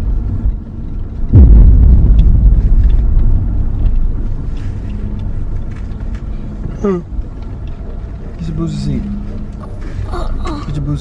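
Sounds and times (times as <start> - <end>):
car road and engine rumble: 0.0 - 11.0
heavy low thump: 1.3 - 5.6.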